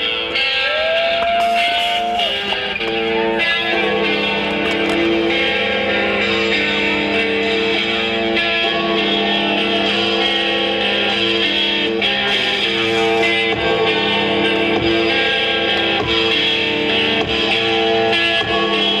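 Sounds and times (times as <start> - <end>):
rock music with electric guitar: 0.0 - 19.0.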